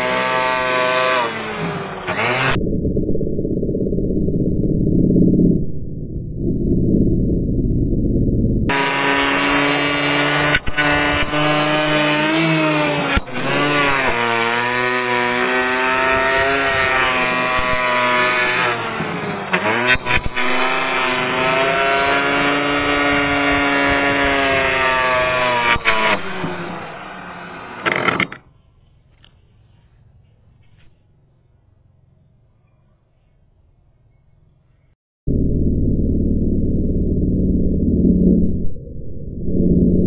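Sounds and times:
electric planer cutting wood: 0.0s - 2.6s, 8.7s - 28.4s.

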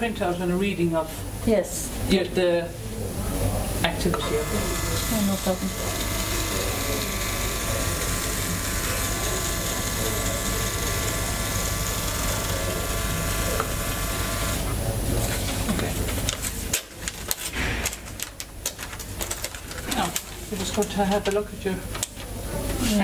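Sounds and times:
printer motor whine: 4.0s - 21.4s
paper rustling: 15.1s - 23.0s.

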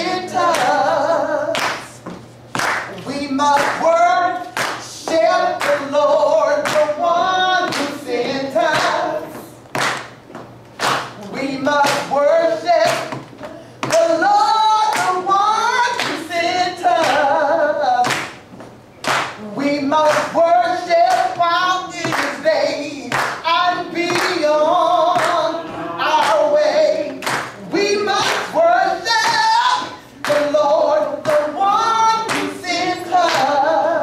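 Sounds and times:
person singing gospel: 0.0s - 2.1s, 2.8s - 9.6s, 11.1s - 18.4s, 19.4s - 34.0s
hand clapping: 1.5s - 5.9s, 6.6s - 7.0s, 7.6s - 8.0s, 8.7s - 9.0s, 9.7s - 10.2s, 10.8s - 11.2s, 11.8s - 12.1s, 12.8s - 14.2s, 14.9s - 15.2s, 15.9s - 16.2s, 17.0s - 17.3s, 18.0s - 19.4s, 21.0s - 22.4s, 23.0s - 24.4s, 25.1s - 25.5s, 26.1s - 28.6s, 29.2s - 29.5s, 30.2s - 30.6s, 31.2s - 31.6s, 32.2s - 32.6s, 33.2s - 33.6s.

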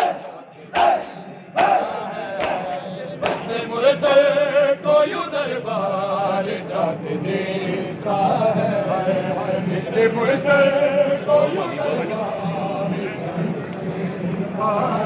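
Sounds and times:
men chanting together: 0.0s - 15.0s
hands slapping chests: 2.4s - 3.5s.

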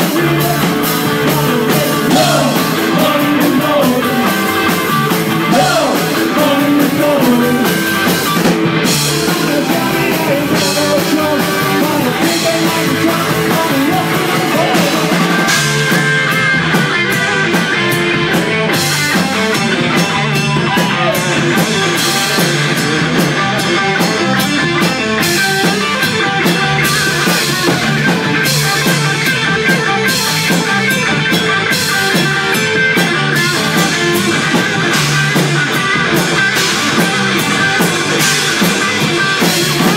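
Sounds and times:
person singing: 0.0s - 4.8s, 5.4s - 7.9s, 9.3s - 15.5s
drum kit with cymbals: 0.0s - 39.9s
electric guitars: 0.0s - 39.9s.

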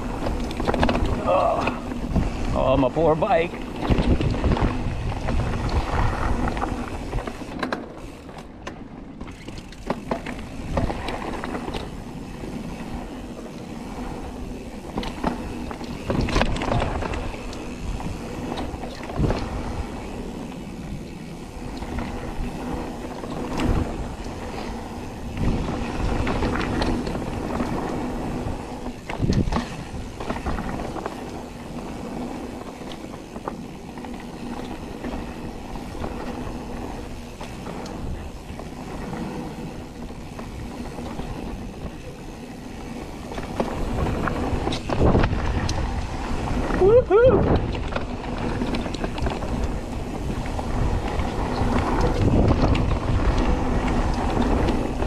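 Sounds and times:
mountain bike rattling on dirt: 0.0s - 55.0s
bike knocking on rocks: 3.6s - 13.5s, 14.8s - 19.7s.

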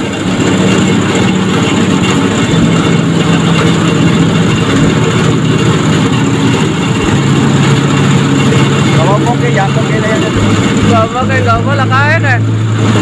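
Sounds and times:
heavy boat engine running: 0.0s - 13.0s.

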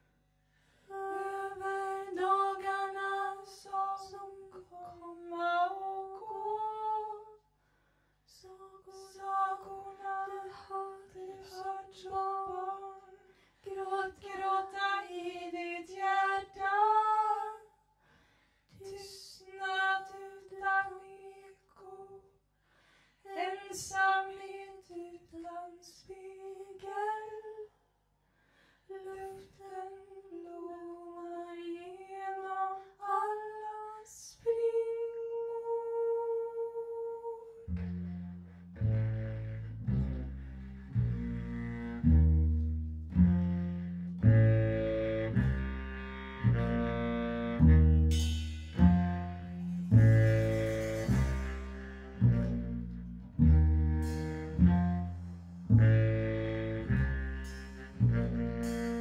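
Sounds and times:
women singing long held notes: 0.9s - 7.3s.

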